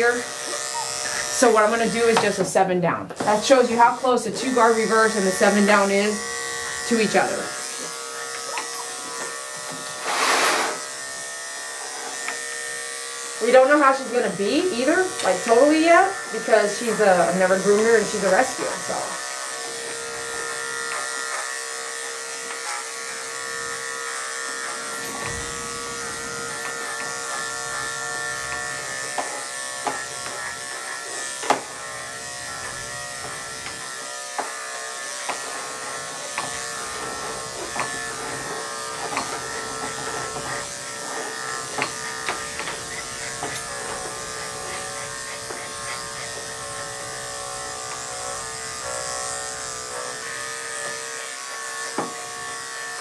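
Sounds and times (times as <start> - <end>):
electric clippers buzzing: 0.0 - 53.0.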